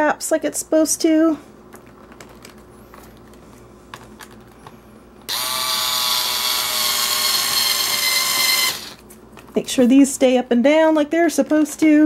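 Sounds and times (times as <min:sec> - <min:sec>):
electric screwdriver running: 0:05.3 - 0:09.0.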